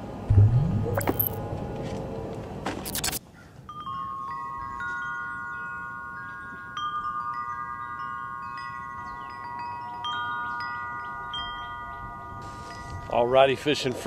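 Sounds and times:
metal tube wind chime ringing: 0:03.7 - 0:13.7.

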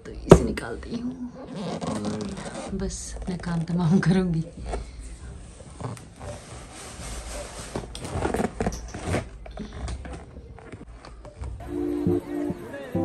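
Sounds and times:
cardboard box scraping and rustling: 0:06.0 - 0:09.4.

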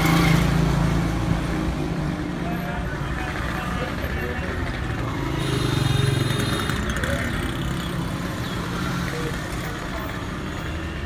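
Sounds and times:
vehicle engines running: 0:00.0 - 0:11.0
people talking: 0:02.4 - 0:05.2, 0:06.7 - 0:10.3.

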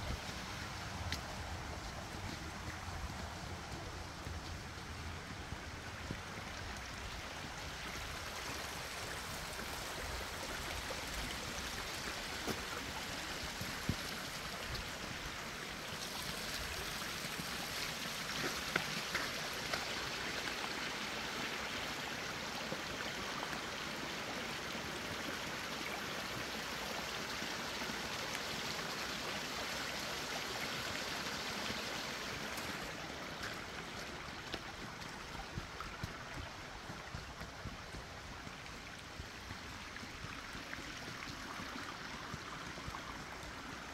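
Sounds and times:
creek water rushing: 0:00.0 - 0:43.9.

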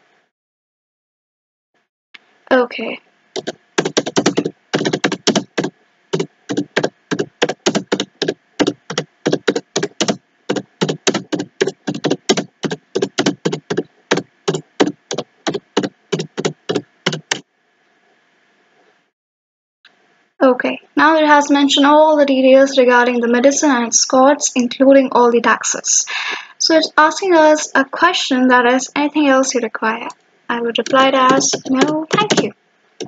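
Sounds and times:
keyboard keys clicking: 0:03.4 - 0:17.4, 0:30.8 - 0:32.5.

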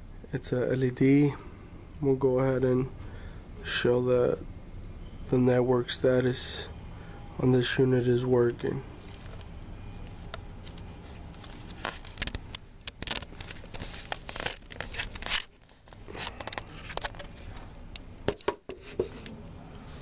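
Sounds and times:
steady low hum: 0:00.0 - 0:20.0
handling rustling and clicks: 0:09.0 - 0:19.4.

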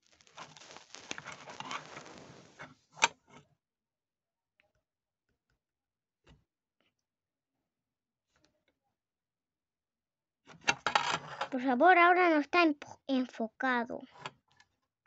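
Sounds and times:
handling rustling and clicks: 0:00.0 - 0:03.1.

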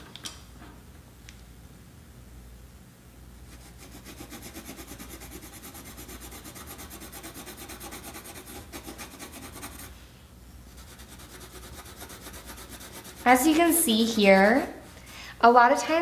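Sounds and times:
pencil scratching on paper: 0:03.5 - 0:10.0, 0:10.7 - 0:13.7.

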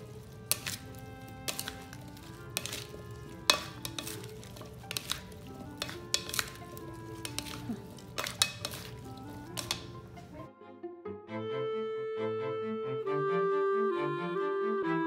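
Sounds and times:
salad servers clacking on bowl: 0:00.0 - 0:10.4
soft background music: 0:00.0 - 0:15.0.

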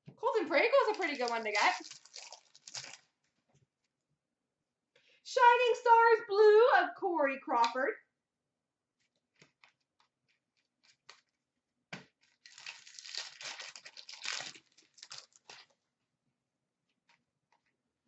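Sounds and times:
wrapper tearing and crinkling: 0:00.8 - 0:03.1, 0:12.2 - 0:15.7.

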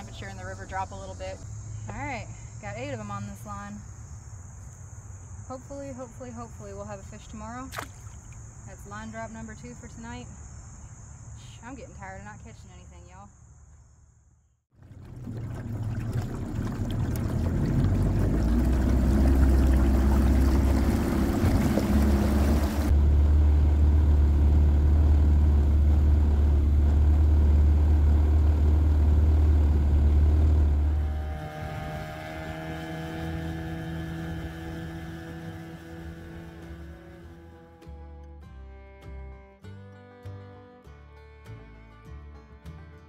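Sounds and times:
outboard motor running: 0:14.7 - 0:38.2
guitar music: 0:36.5 - 0:43.0.

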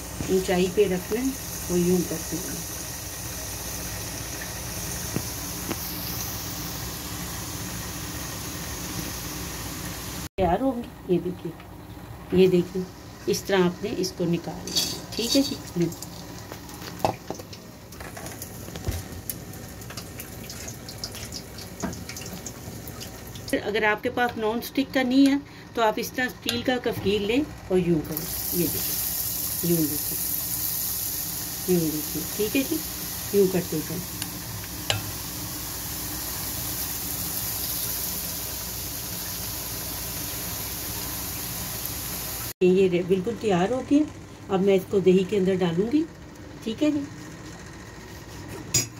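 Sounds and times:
food sizzling in hot oil: 0:00.0 - 0:10.3, 0:12.6 - 0:23.8, 0:28.0 - 0:42.6
oil crackles and pops: 0:04.3 - 0:06.4, 0:15.6 - 0:23.6.

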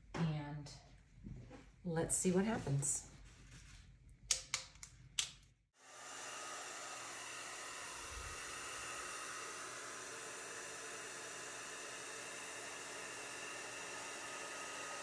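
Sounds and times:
air blower hissing: 0:05.8 - 0:15.0.

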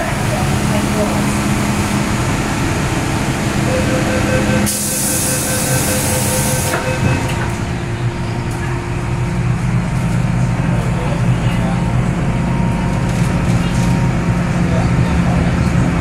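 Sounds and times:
steady low tone: 0:00.0 - 0:16.0
train low rumble: 0:00.0 - 0:16.0
electronic beeping: 0:03.7 - 0:07.4.

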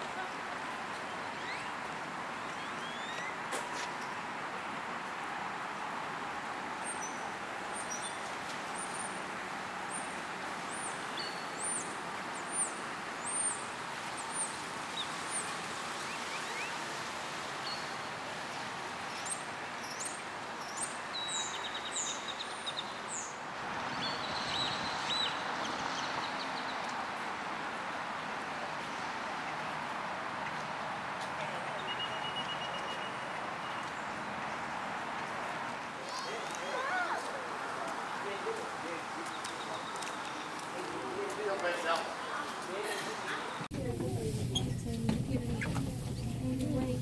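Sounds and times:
birds chirping: 0:01.0 - 0:03.5, 0:09.8 - 0:16.8, 0:17.6 - 0:26.9, 0:38.3 - 0:43.7, 0:44.4 - 0:47.0.

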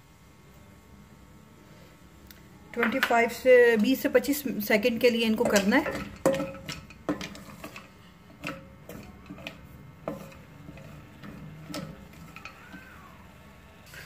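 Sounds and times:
wood scraping on metal pot: 0:02.8 - 0:13.4
wooden spatula stirring nuts: 0:02.8 - 0:14.0.

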